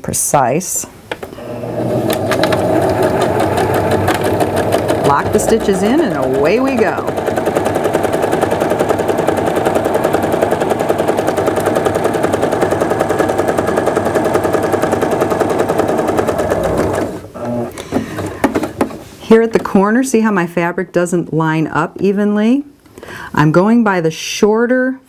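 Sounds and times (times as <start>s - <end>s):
sewing machine stitching: 1.4s - 18.8s.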